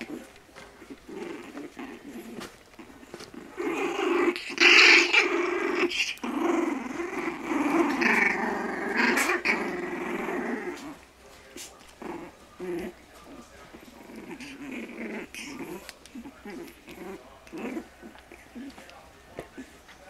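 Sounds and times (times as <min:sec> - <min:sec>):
puppies play-growling: 0:00.0 - 0:20.0.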